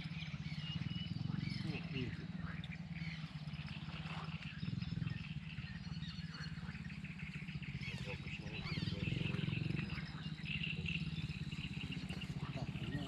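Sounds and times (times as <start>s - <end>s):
bird chirps: 0.0s - 13.0s
pulsing chorus of animal calls: 0.0s - 13.0s.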